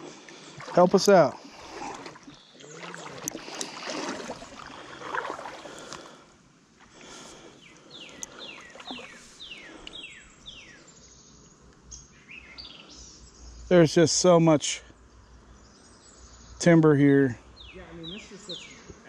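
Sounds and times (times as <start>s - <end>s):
kayak paddle splashing in water: 0.0s - 6.2s, 8.2s - 9.5s.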